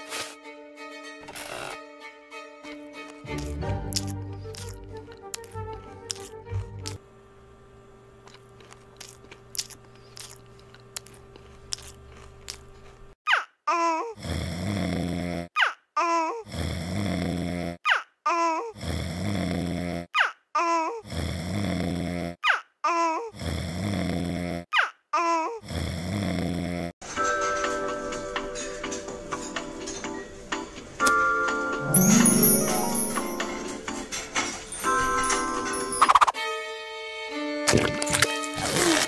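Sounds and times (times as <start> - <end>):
cartoon baby crying: 13.3 - 14.2.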